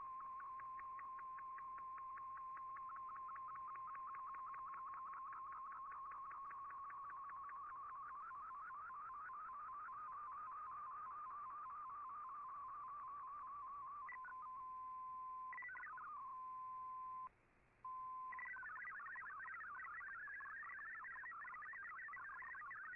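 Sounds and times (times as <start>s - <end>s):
warbling digital radio tone: 0.0s - 17.2s, 18.2s - 22.9s.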